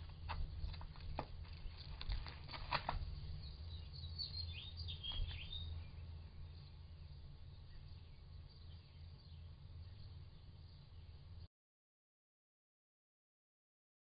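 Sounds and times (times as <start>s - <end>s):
faint low hum: 0.0s - 11.5s
high bird chirps: 3.2s - 6.7s.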